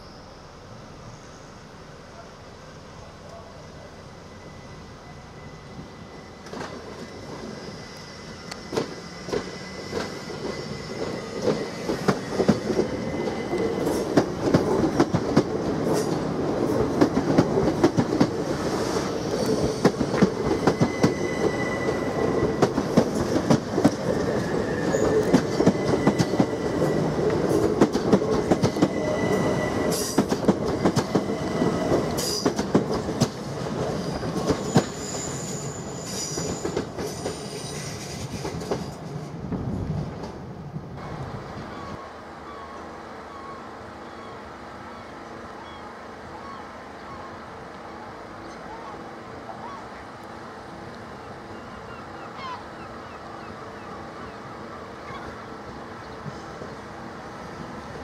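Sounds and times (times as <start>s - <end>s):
high wheel squeal: 4.0s - 14.2s, 18.7s - 23.4s, 24.0s - 27.6s, 28.4s - 32.6s, 33.9s - 39.0s
train wheels clicking over rail joints: 8.4s - 35.3s, 36.1s - 40.4s.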